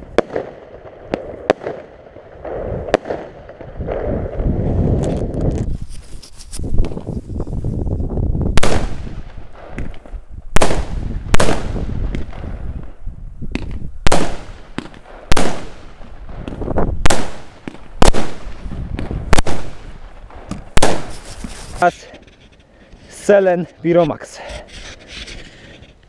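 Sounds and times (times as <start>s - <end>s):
firework bangs with echo: 0.0s - 4.4s, 8.6s - 12.9s, 13.5s - 21.2s.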